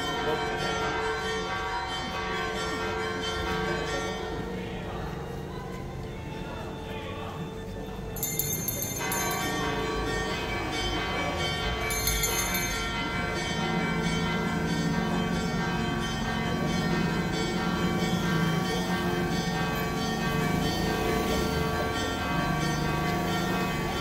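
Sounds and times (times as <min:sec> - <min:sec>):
church bells ringing: 0:00.0 - 0:24.0.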